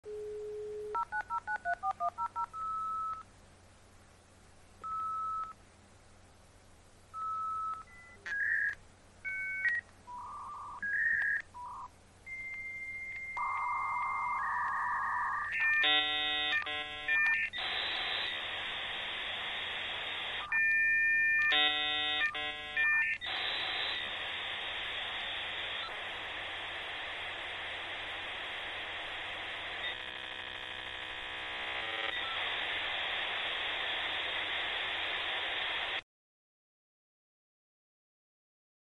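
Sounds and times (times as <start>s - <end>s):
dial-up modem handshake: 0.9s - 3.2s, 7.2s - 26.1s.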